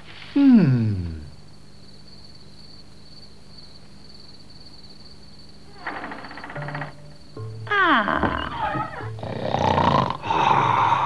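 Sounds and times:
crickets chirring: 0.0 - 11.0
man's sleepy falling sigh: 0.2 - 1.3, 9.2 - 11.0.

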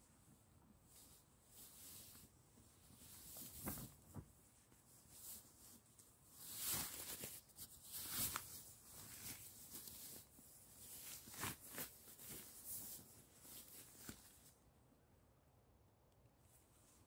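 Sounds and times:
sleeping bag fabric rustling: 4.9 - 14.6.

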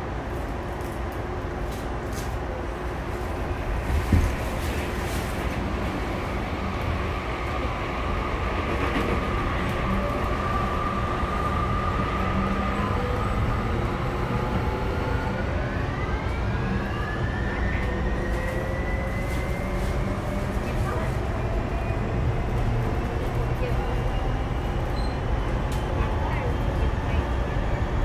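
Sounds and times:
train wheels rumbling on track: 0.0 - 28.0.

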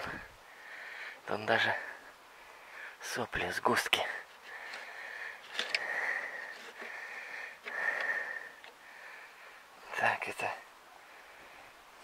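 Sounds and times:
man breathing through nose: 0.0 - 1.2, 4.4 - 9.8.

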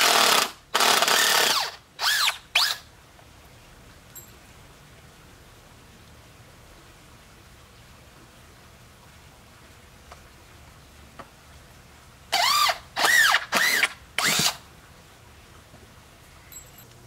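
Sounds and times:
power drill whining: 0.0 - 2.8, 12.4 - 14.6.

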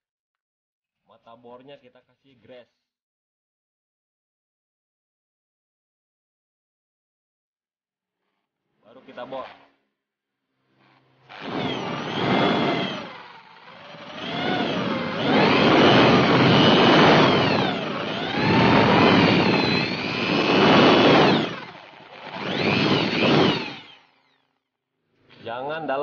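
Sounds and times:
electric drill whining: 10.8 - 24.6.

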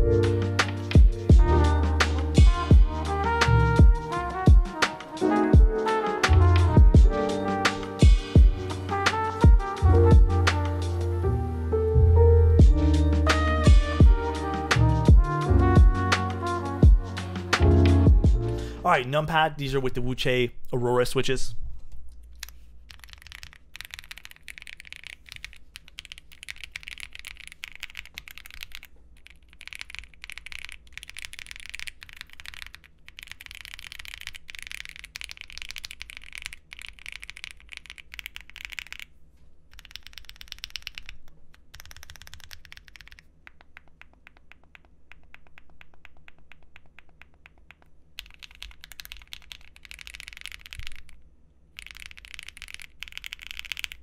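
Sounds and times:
keyboard typing: 22.3 - 39.1, 39.7 - 51.2, 51.8 - 54.0.

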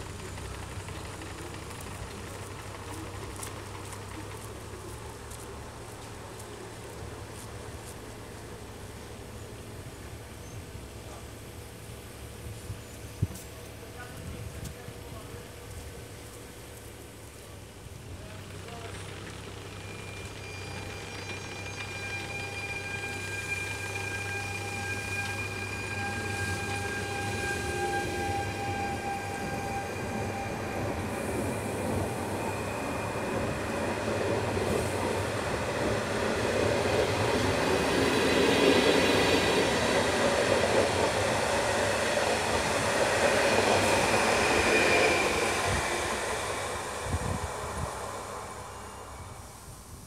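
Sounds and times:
electric train whine: 0.0 - 50.0
train wheel and rail noise: 0.0 - 50.0.

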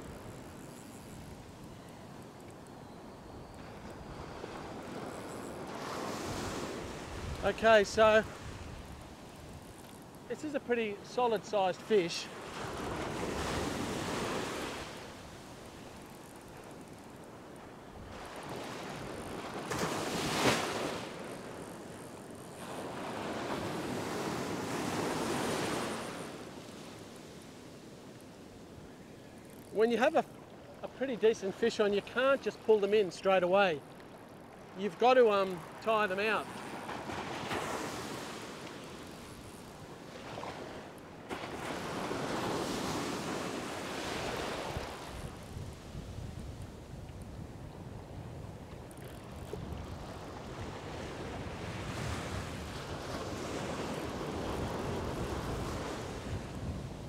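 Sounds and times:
wind on microphone: 3.5 - 9.8, 41.5 - 57.0
surf breaking and washing: 3.6 - 16.0, 18.1 - 28.7, 29.5 - 57.0
surf breaking on sand: 18.4 - 21.3, 34.9 - 39.6.

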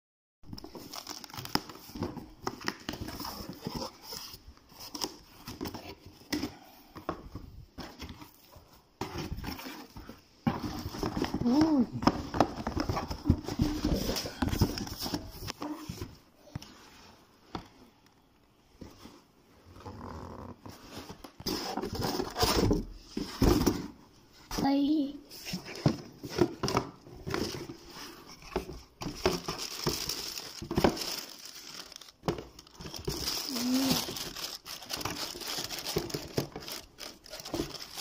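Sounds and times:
person's voice: 11.4 - 12.1, 24.6 - 25.2, 33.5 - 34.1.

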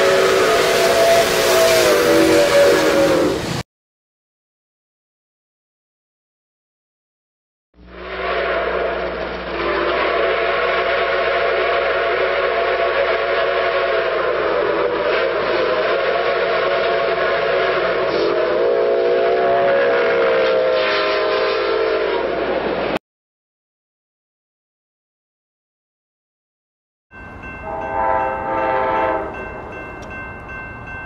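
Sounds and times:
hiss of steam: 0.0 - 3.6, 7.9 - 23.0
steam whistle chord: 0.0 - 3.6, 7.8 - 22.9, 27.4 - 30.1.

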